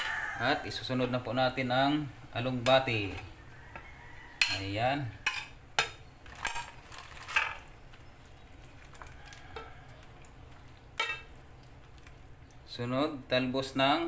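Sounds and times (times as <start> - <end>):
metal spoon clinking on pot: 4.4 - 6.6, 11.0 - 11.3.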